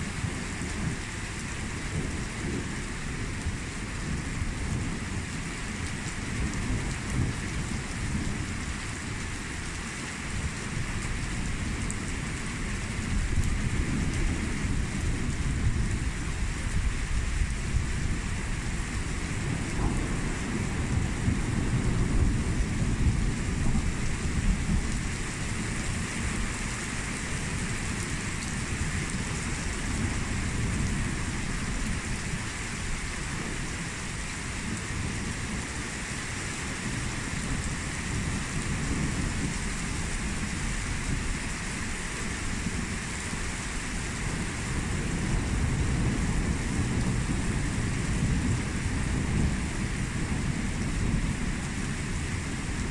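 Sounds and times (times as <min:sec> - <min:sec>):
steady rain falling: 0:00.0 - 0:52.9
thunder rumbling: 0:13.1 - 0:26.5.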